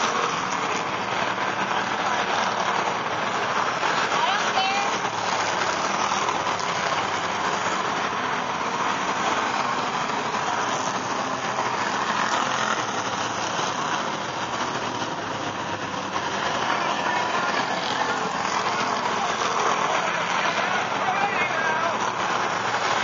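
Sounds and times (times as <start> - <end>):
race car engines on track: 0.0 - 23.0.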